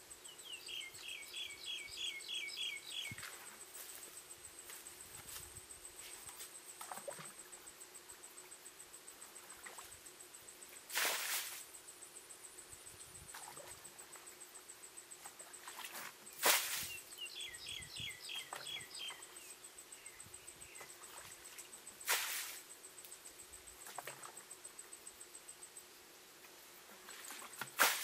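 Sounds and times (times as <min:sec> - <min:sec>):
bird chirping: 0:00.2 - 0:03.2, 0:16.9 - 0:20.9
water splashing into a ditch: 0:10.9 - 0:11.6, 0:15.6 - 0:17.0, 0:22.0 - 0:22.6, 0:27.1 - 0:28.0.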